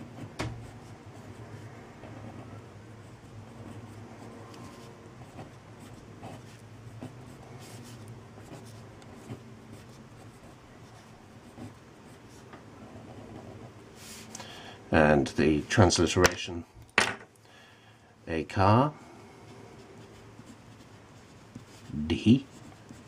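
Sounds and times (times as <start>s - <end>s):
pen scratching on paper: 0.0s - 14.3s, 19.4s - 23.0s
low steady hum: 0.0s - 23.0s.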